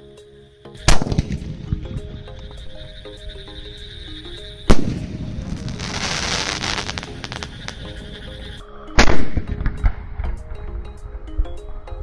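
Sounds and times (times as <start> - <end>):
firework hiss and crackle: 4.7 - 8.6.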